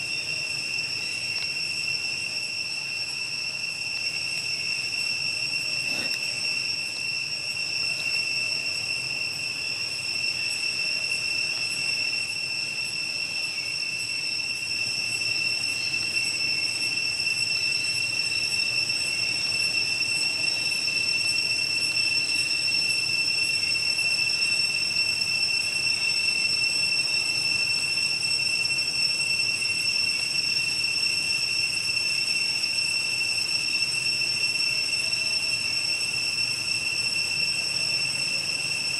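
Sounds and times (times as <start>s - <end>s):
insects droning: 0.0s - 38.9s.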